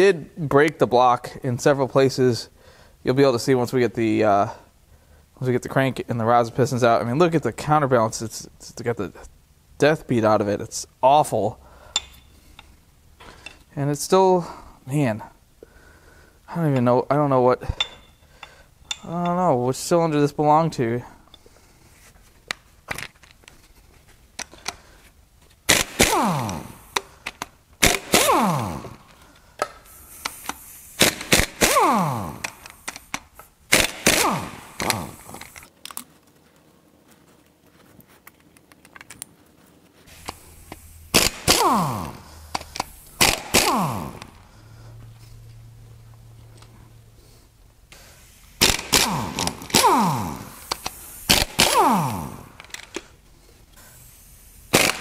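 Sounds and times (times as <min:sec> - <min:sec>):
pneumatic impact wrench rattling: 0:25.6 - 0:35.7, 0:40.1 - 0:44.5, 0:47.9 - 0:55.0.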